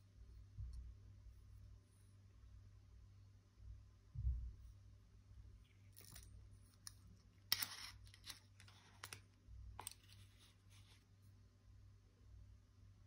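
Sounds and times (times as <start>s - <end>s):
dull low thump: 4.1s - 4.6s.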